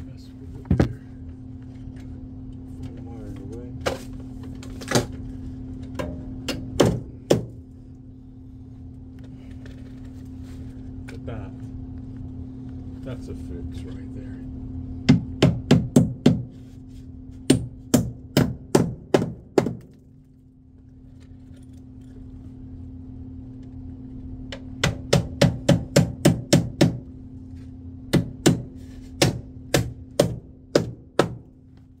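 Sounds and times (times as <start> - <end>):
steady low hum: 0.0 - 32.0
hammer striking nails: 6.0 - 7.6, 15.1 - 16.5, 17.5 - 20.0, 24.5 - 27.0, 28.1 - 31.5.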